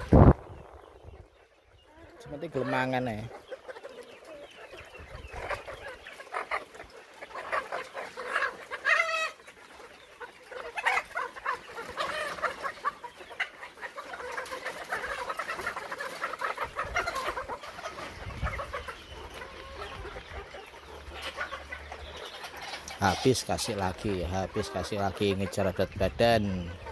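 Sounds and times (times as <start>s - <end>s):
hens clucking: 0.0s - 26.9s.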